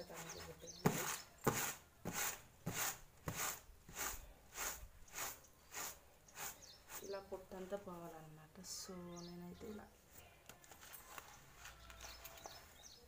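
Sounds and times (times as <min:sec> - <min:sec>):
rice flakes swishing in a tray: 0:01.0 - 0:07.2.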